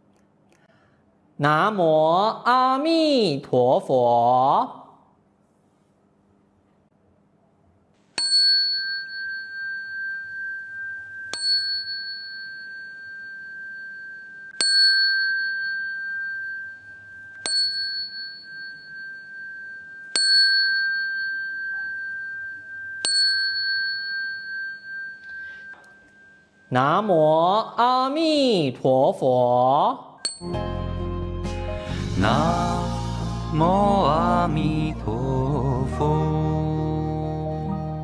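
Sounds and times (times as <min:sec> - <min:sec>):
bowl bell ringing: 0:08.2 - 0:27.0, 0:30.2 - 0:30.7.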